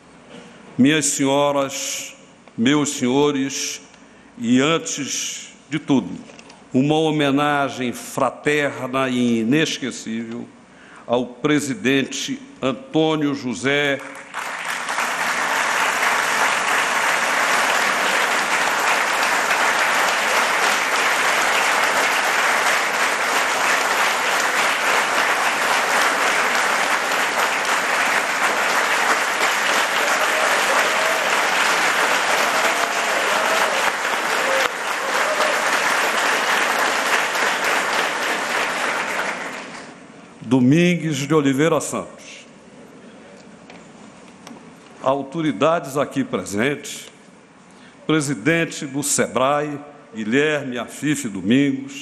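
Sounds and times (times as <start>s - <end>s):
audience applauding: 14.0s - 40.0s.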